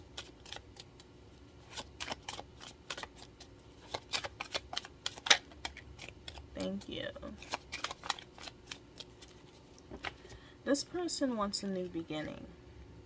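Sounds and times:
cards being shuffled: 0.0s - 10.4s.

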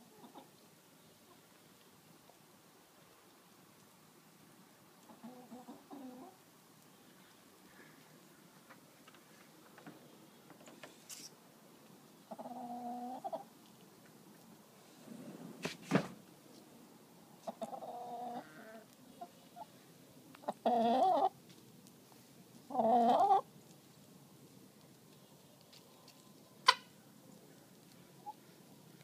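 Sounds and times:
hens calling: 12.3s - 13.5s, 17.4s - 19.7s, 20.4s - 21.4s, 22.7s - 23.5s, 26.6s - 27.0s.

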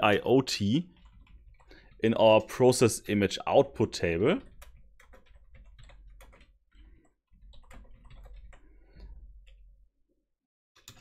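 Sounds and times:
keyboard typing clicks: 10.8s - 11.0s.

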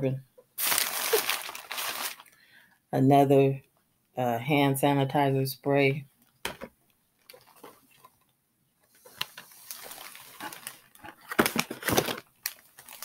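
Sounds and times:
packaging rustling and crinkling: 0.6s - 2.4s, 9.1s - 13.0s.

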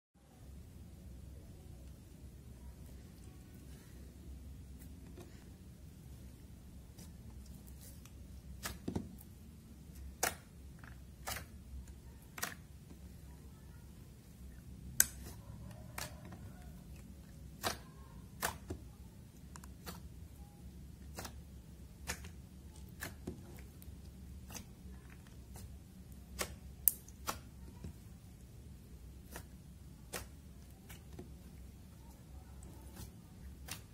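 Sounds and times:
faint low hum: 0.2s - 33.9s
slime clicking and popping: 10.0s - 12.7s, 24.4s - 27.5s.

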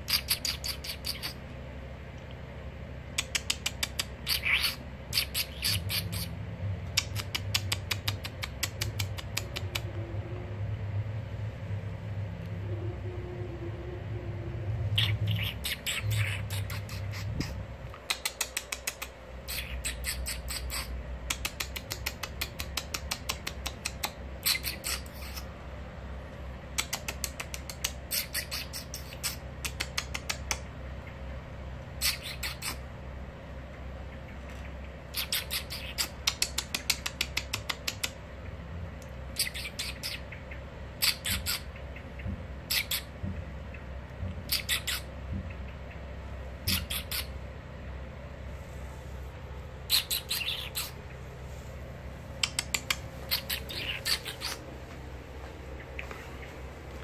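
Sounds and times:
low hum: 0.0s - 57.0s
blackbird rattling alarm call: 4.2s - 6.3s, 44.5s - 45.1s, 46.7s - 47.4s, 49.9s - 51.0s, 52.4s - 54.6s.

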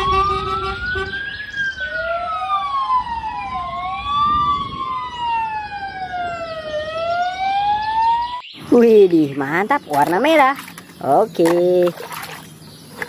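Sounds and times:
fire engine sirens wailing: 0.0s - 8.4s.

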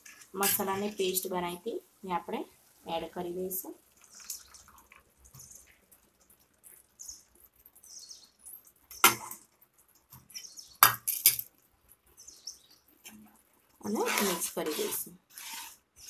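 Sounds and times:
metal spoon scraping steel bowl: 0.0s - 1.0s, 13.9s - 15.8s.

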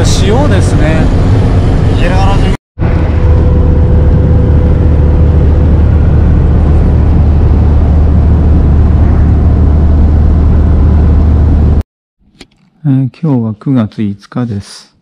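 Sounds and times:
van engine and road rumble: 0.0s - 11.8s.

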